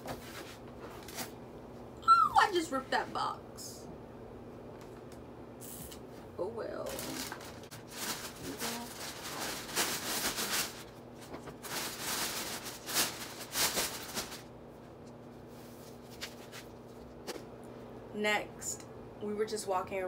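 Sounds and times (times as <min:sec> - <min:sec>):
cardboard and plastic bag rustling: 0:06.9 - 0:14.5.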